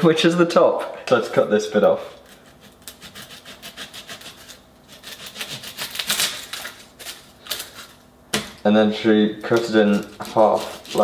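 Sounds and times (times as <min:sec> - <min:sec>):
knife sawing through onion: 0:02.2 - 0:07.9, 0:09.8 - 0:11.0.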